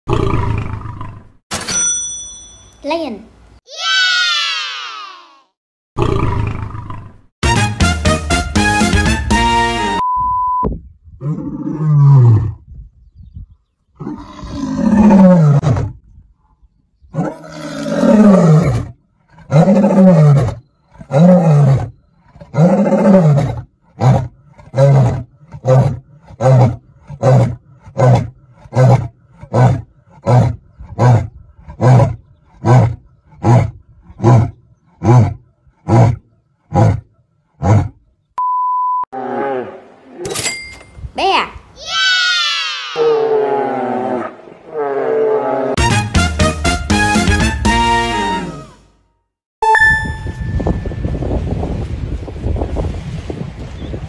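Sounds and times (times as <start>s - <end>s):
lion roaring: 11.2s - 12.6s, 14.0s - 16.0s, 17.1s - 38.0s, 39.2s - 40.2s, 43.0s - 45.8s
steady beep: 49.6s - 51.2s.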